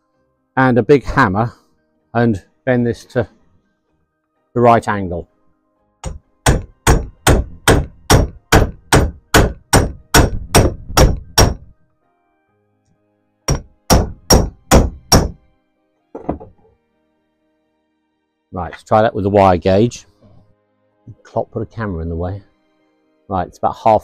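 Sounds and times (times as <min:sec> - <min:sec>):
hammer striking metal block: 0:06.0 - 0:11.7, 0:13.5 - 0:15.4, 0:16.2 - 0:16.7.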